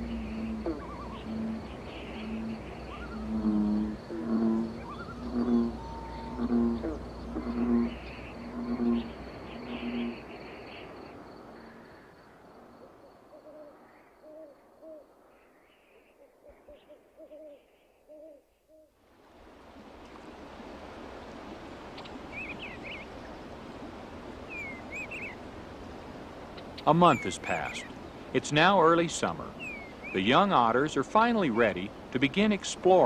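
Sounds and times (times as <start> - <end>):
bird chirps: 0.0 - 3.8, 4.8 - 6.4, 24.5 - 25.4, 26.6 - 28.0, 29.6 - 30.3
owl hooting: 0.0 - 10.2, 12.8 - 15.1, 15.9 - 18.9, 24.5 - 25.4, 29.6 - 30.2
running water: 19.2 - 33.0.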